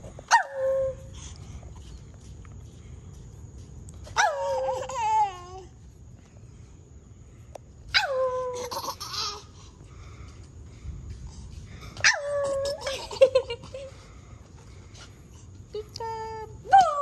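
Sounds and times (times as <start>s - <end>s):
toddler laughing squealing: 4.2s - 5.2s, 8.5s - 9.4s, 12.1s - 13.4s.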